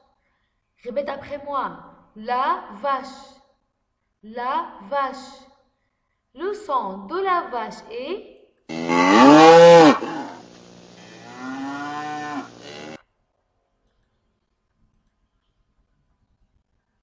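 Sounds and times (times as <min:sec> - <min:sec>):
cow mooing: 0:08.7 - 0:13.0.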